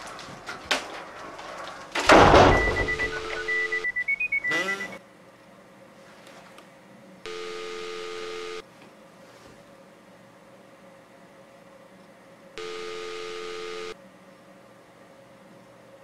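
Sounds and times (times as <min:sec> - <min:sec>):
high electronic beeps: 0:02.5 - 0:05.0, 0:12.6 - 0:14.0
telephone ringback tone: 0:02.5 - 0:05.0, 0:07.3 - 0:08.6, 0:12.6 - 0:14.0.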